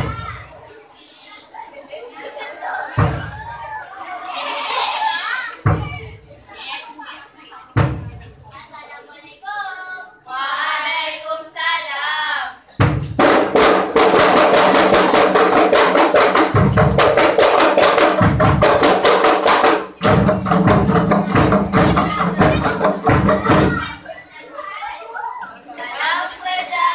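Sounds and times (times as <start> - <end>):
hand drums fast rhythm: 12.8 - 24.0.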